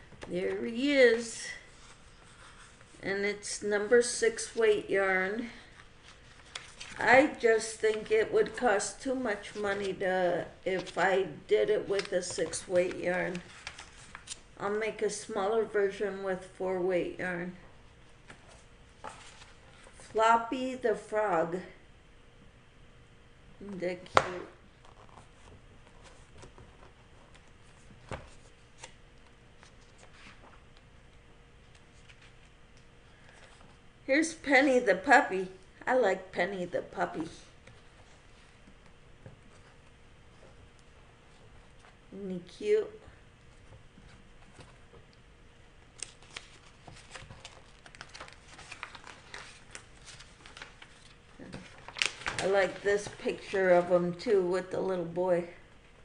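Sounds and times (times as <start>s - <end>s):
fingers rustling book pages: 5.7s - 7.2s, 11.8s - 14.5s, 18.2s - 20.1s, 24.8s - 33.8s, 45.9s - 53.9s.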